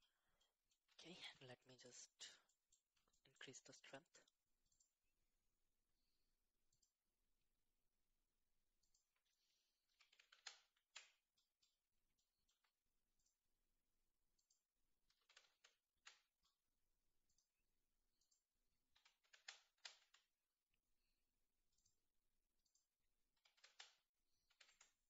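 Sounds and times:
mouse and keyboard clicking: 10.0 - 11.2, 14.4 - 16.5, 18.2 - 20.3, 23.4 - 25.0.

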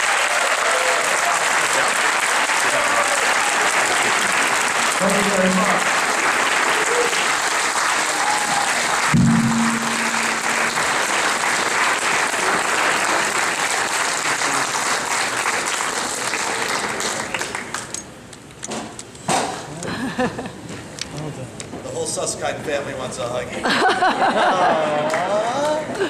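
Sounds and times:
audience applauding: 0.0 - 17.9.

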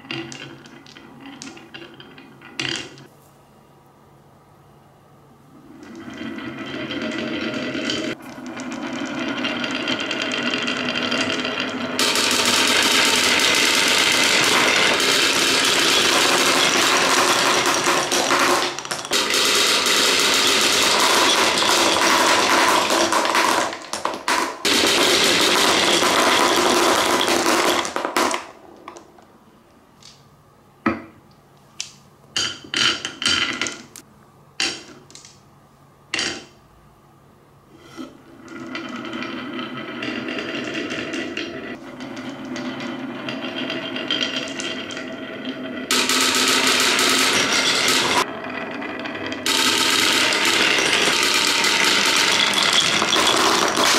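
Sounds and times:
balls rattling down wooden tracks: 0.0 - 3.1, 5.8 - 29.2, 38.4 - 53.9.

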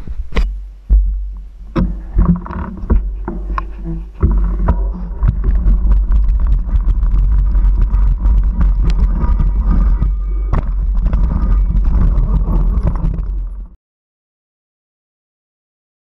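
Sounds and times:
wind and vibration rumble: 0.0 - 13.8
bike rattling over stones: 0.9 - 13.8.

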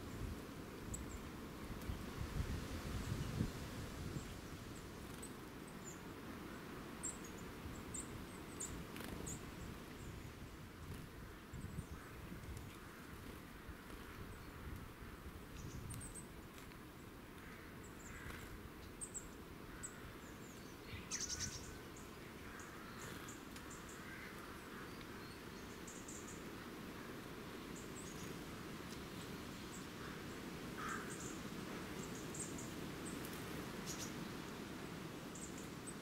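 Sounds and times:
small birds chirping: 0.0 - 36.0.

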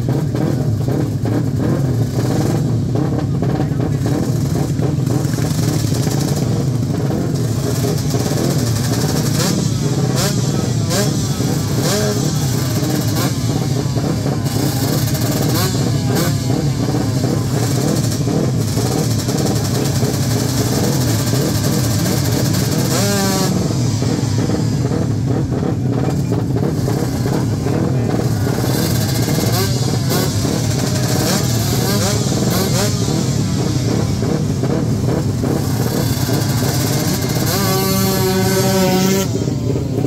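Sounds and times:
motorcycle engines revving: 0.0 - 40.0.

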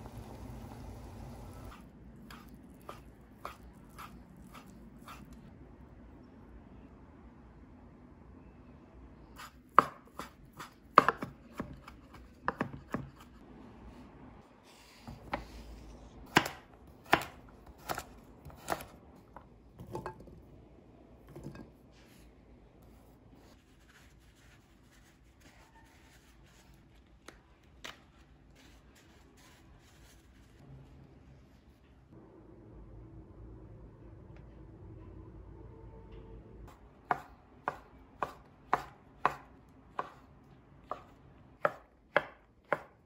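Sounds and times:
knife chopping on cutting board: 9.4 - 13.3, 16.3 - 18.9, 37.1 - 40.2, 40.8 - 43.0.

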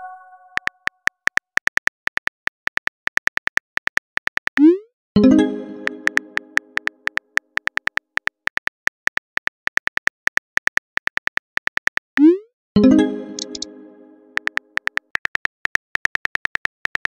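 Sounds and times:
keyboard tap clicks: 5.8 - 9.2, 13.4 - 13.7
soft plucked chime: 12.8 - 14.4.

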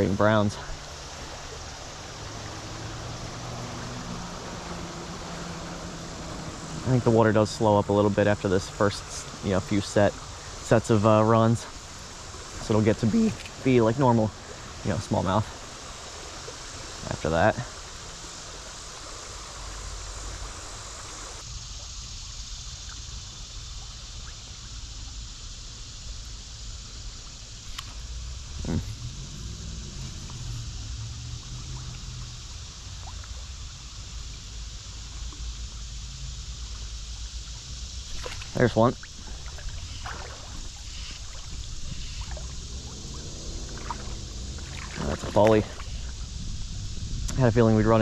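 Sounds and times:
river rushing over gravel: 0.0 - 21.5, 36.0 - 48.0
low rumble: 39.0 - 48.0.

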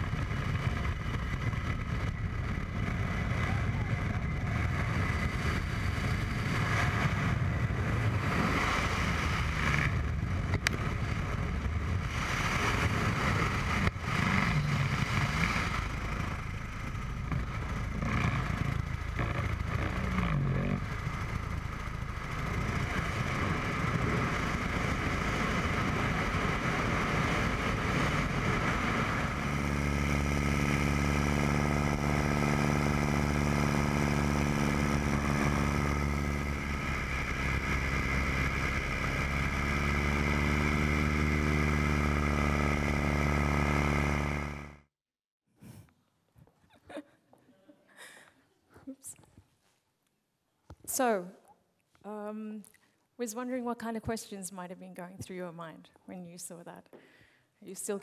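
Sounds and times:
wind rush on microphone: 0.0 - 43.2
propeller plane engine droning: 0.0 - 44.9.

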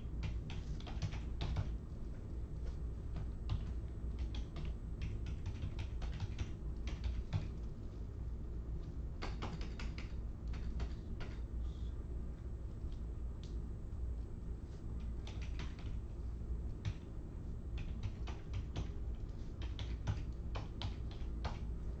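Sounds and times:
keyboard key clicks: 9.2 - 11.4.

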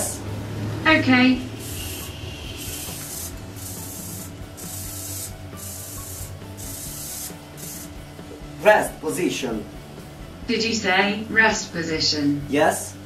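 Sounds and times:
servo motors whirring: 1.6 - 8.0.

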